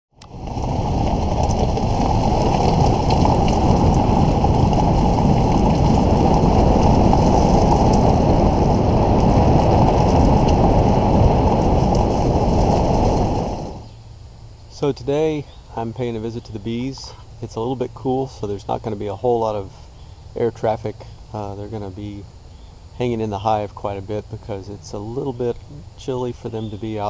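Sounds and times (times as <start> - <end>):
wind noise on microphone: 0.1 - 20.5
vehicle driving on gravel road: 0.1 - 27.0.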